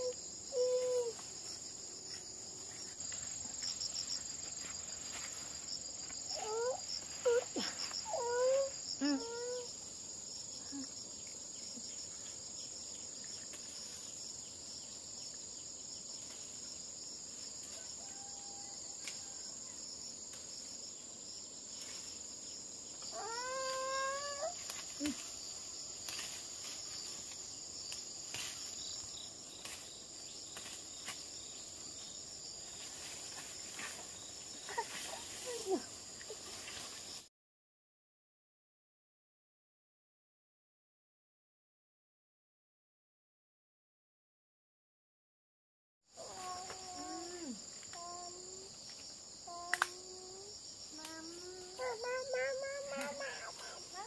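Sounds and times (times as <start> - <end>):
small child whining: 0.0 - 1.2, 6.3 - 9.7, 23.1 - 25.2, 46.2 - 48.7
leaves rustling: 0.0 - 10.2, 21.6 - 37.3, 46.2 - 49.2
insects chirring: 0.0 - 37.3, 46.1 - 54.0.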